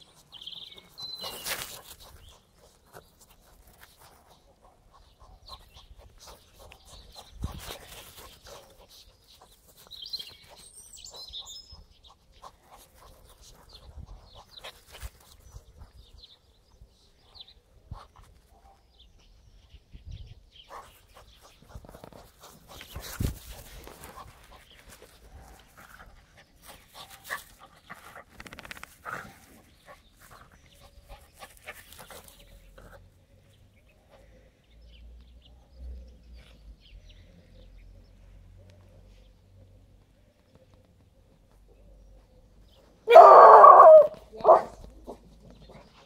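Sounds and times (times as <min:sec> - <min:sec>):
birds chirping: 0:00.0 - 0:46.0.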